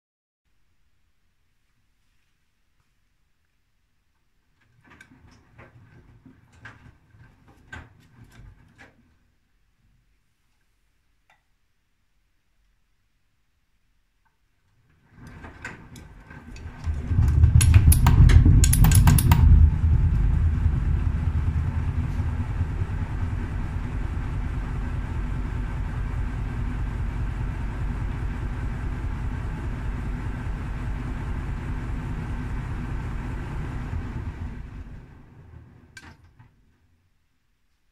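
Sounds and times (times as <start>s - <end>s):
washing machine low rumble: 15.0s - 36.4s
washing machine drum knocking: 16.7s - 30.3s.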